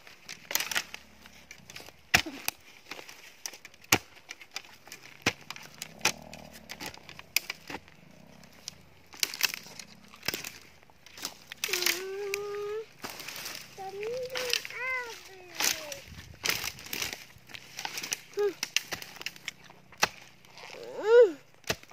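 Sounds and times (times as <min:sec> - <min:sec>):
dry grass and twigs rustling: 0:00.0 - 0:21.9
hoe blade chopping into earth: 0:01.7 - 0:07.9, 0:20.0 - 0:20.4, 0:21.6 - 0:21.9.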